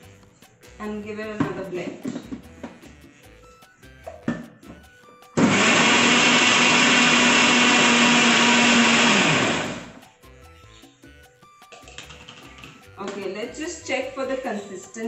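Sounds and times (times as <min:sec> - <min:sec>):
mixer grinder motor running: 0:05.4 - 0:10.0.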